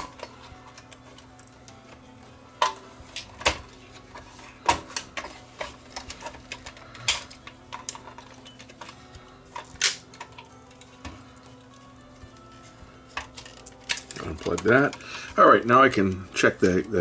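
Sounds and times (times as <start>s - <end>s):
screwdriver and metal parts clicking: 2.6s - 12.3s, 13.1s - 17.0s.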